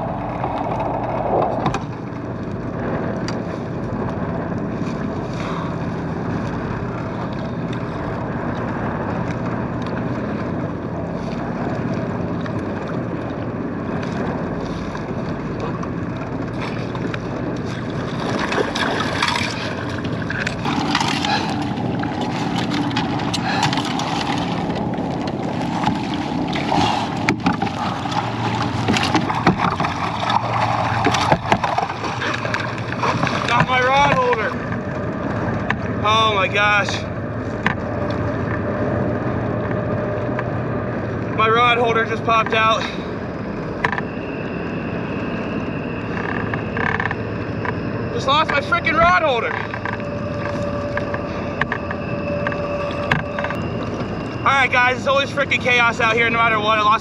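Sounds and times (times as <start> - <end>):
wind on microphone: 0.0 - 36.0
boat motor humming: 0.0 - 57.0
water washing against hull: 0.0 - 57.0.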